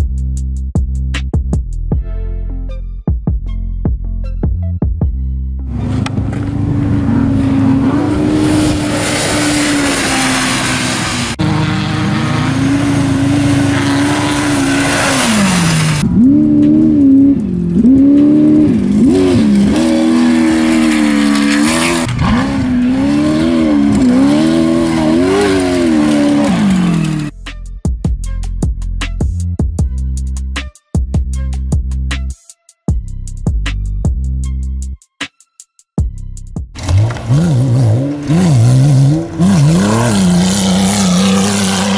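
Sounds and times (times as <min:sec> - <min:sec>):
race vehicle engine revving: 0:05.7 - 0:27.3, 0:36.8 - 0:41.9
loud rushing noise: 0:05.8 - 0:17.6.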